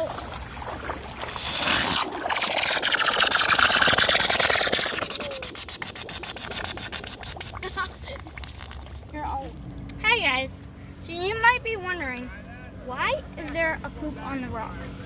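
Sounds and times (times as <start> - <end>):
firework hissing and crackling: 1.3 - 7.8.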